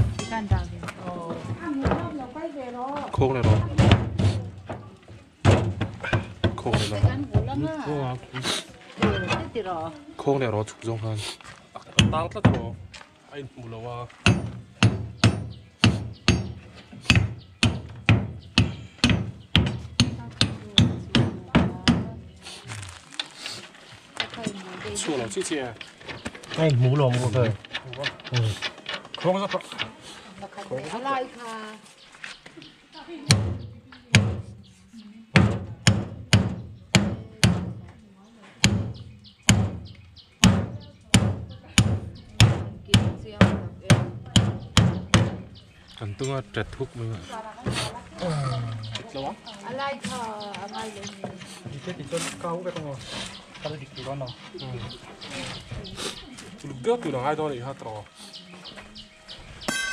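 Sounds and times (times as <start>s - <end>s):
hammer blows on concrete mould: 59.6s - 59.9s.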